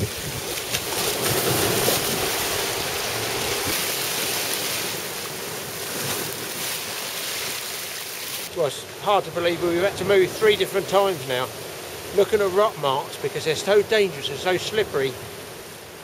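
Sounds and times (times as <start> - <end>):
wind buffeting microphone: 0.0 - 3.8
surf breaking over rocks: 0.0 - 15.2.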